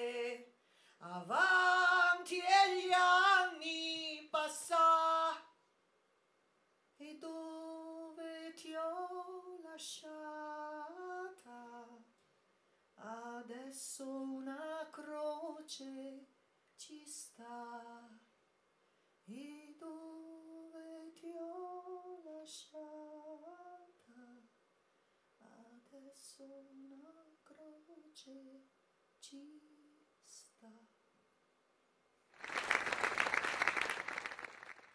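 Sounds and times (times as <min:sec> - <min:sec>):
woman singing unaccompanied: 0:00.0 - 0:05.5, 0:07.0 - 0:12.1, 0:13.0 - 0:18.2, 0:19.3 - 0:24.5, 0:25.4 - 0:31.0.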